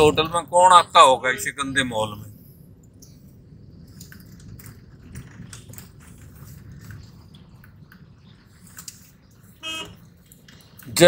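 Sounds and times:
car cabin rumble: 3.3s - 11.0s.

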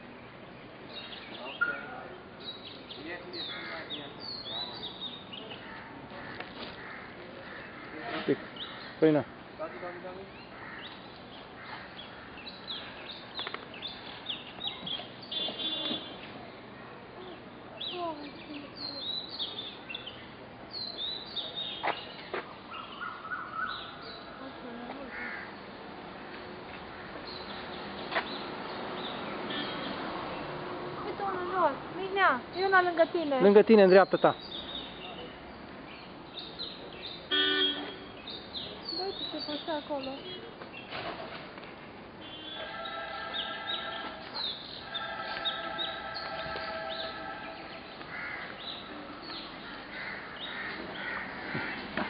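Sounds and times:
birds chirping: 0.0s - 41.1s, 42.2s - 52.0s
steady background noise: 0.0s - 52.0s
harsh bird calls: 0.9s - 16.3s, 17.2s - 25.7s, 42.2s - 52.0s.

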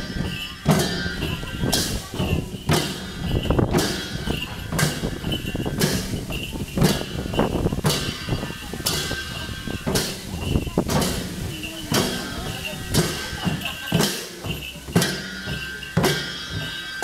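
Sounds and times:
barrel drums beating: 0.0s - 17.0s
people chattering: 0.0s - 17.0s.

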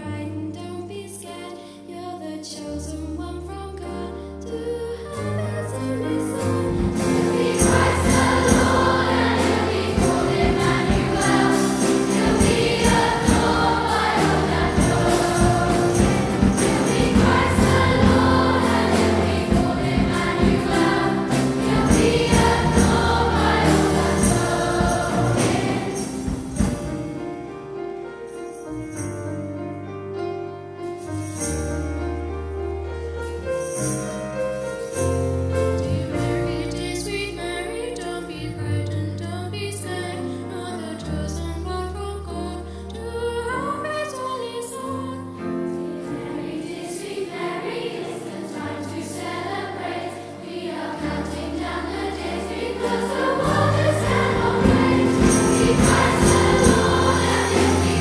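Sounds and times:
piano: 0.0s - 58.0s
children's choir singing: 5.8s - 27.0s, 44.0s - 58.0s
bright percussion: 6.4s - 27.4s, 46.4s - 58.0s
drum kit: 6.4s - 27.5s, 52.2s - 58.0s.

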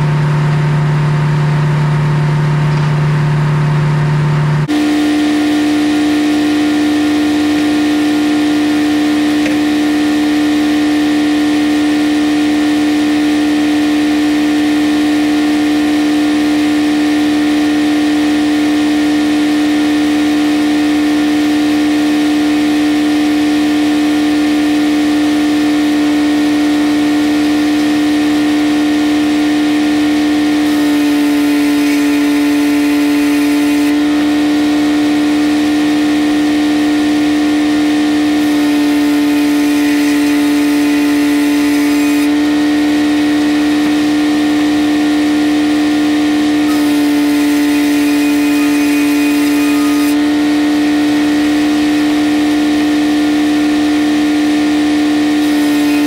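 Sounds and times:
circular saw running with hum: 0.0s - 56.0s
saw blade cutting wood: 27.6s - 28.4s, 30.1s - 34.8s, 37.6s - 42.7s, 46.6s - 50.6s, 55.3s - 56.0s.

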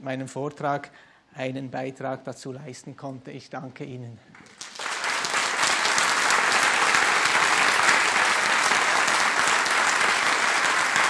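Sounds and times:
audience applauding: 4.4s - 11.0s.

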